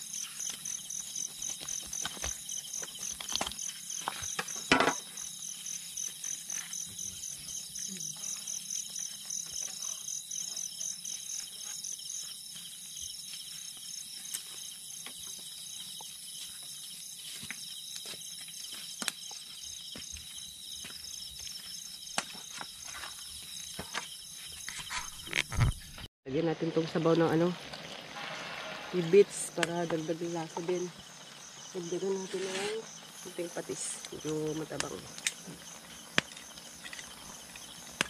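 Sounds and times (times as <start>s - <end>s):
constant high-pitched buzz: 0.0s - 38.0s
insects chirping in pulses: 0.0s - 38.0s.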